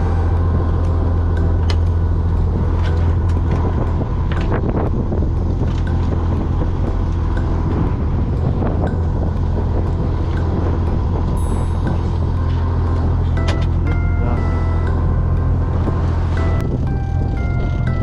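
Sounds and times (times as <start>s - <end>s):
boat engine humming: 0.0s - 18.0s.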